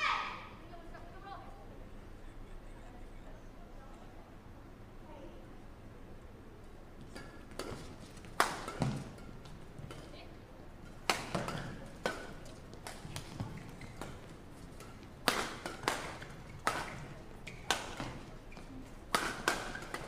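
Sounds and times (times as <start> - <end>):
rackets hitting shuttlecock: 7.0 - 10.2, 10.8 - 20.0.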